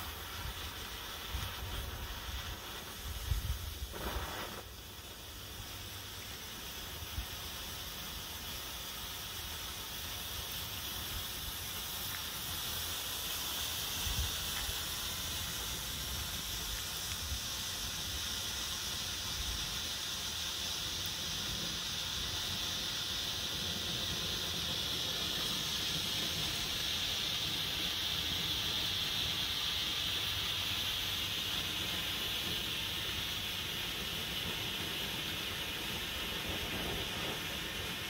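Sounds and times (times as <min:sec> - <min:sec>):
flare burning with hiss: 0:00.0 - 0:38.0.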